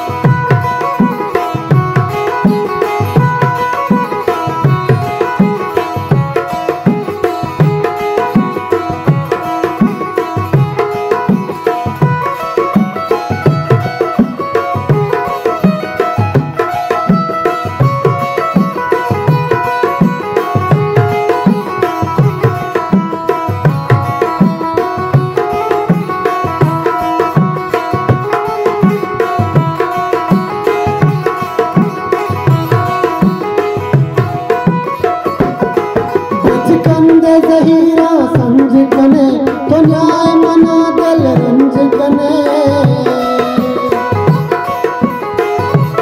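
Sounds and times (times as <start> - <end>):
hand drum beat: 0.0 - 46.0
plucked zither melody: 0.0 - 46.0
person singing: 36.4 - 44.3.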